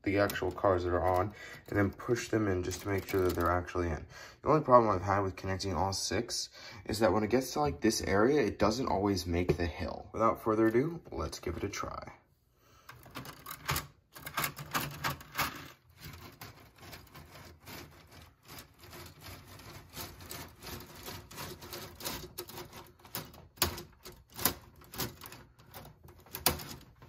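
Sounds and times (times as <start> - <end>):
plastic chain clicking: 12.9 - 27.0.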